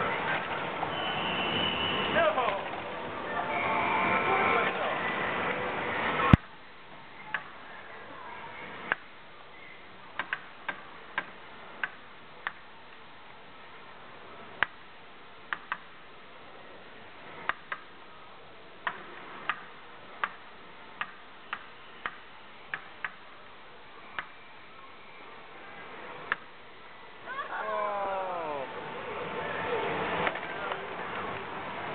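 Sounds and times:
sharp clicks and knocks: 10.2 - 12.6, 15.5 - 15.9, 17.4 - 17.9.

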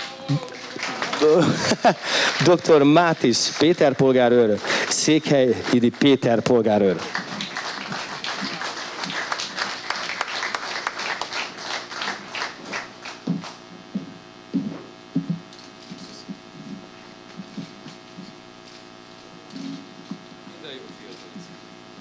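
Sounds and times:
audience applauding: 0.0 - 13.6
steady low hum: 0.0 - 22.0.

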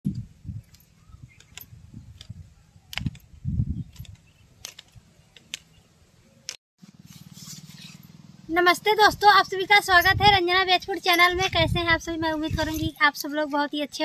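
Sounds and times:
fruits snapping off branch: 2.2 - 3.2.

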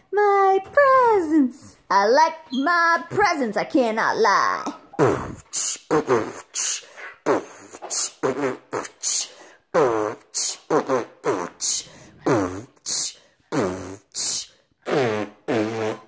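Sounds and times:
person beatboxing: 5.0 - 16.0.

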